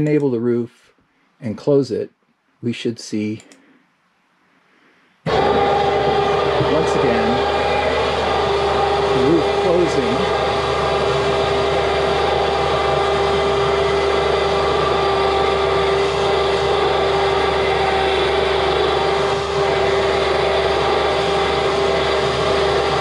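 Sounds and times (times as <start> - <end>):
drive motor humming: 5.3 - 23.0.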